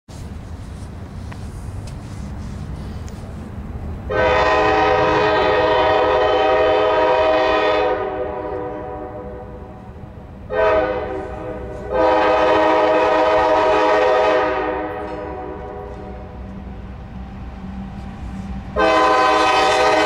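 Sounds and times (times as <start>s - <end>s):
train rumble: 0.1s - 20.0s
locomotive air horn: 4.1s - 16.4s, 18.7s - 20.0s.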